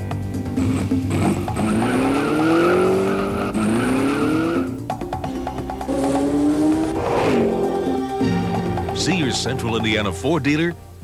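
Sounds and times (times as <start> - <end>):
music playing: 0.0 - 11.0
race car engine accelerating: 0.6 - 4.9, 5.5 - 8.7.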